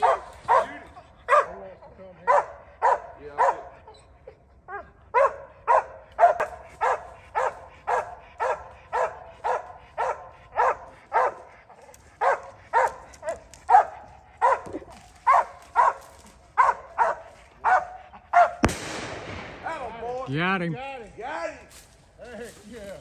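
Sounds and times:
dog barking: 0:00.0 - 0:01.6, 0:02.2 - 0:03.9, 0:04.7 - 0:18.6.

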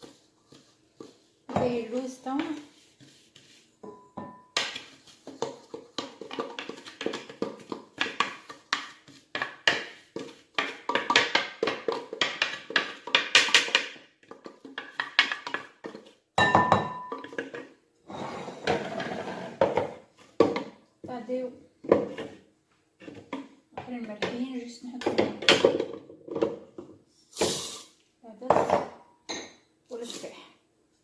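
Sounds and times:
spatula scraping plastic bowl: 0:00.0 - 0:03.8, 0:18.1 - 0:19.8.

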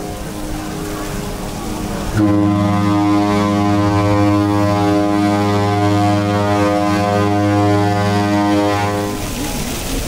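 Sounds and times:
ship's horn blast: 0:02.1 - 0:09.3.

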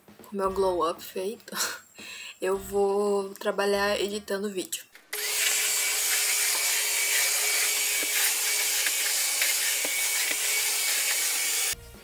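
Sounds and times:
vacuum cleaner running: 0:05.2 - 0:11.8.

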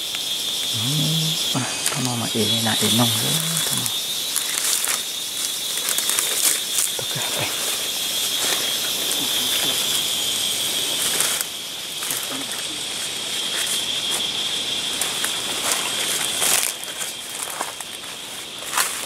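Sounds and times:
night insects humming: 0:00.0 - 0:19.0
leaves and twigs rustling and snapping: 0:01.9 - 0:07.1, 0:10.9 - 0:13.9, 0:15.0 - 0:19.0.

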